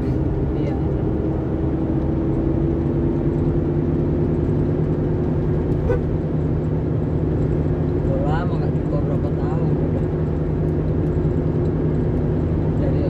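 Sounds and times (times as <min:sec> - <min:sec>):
car engine hum: 0:00.0 - 0:13.0
road noise inside car: 0:00.0 - 0:13.0.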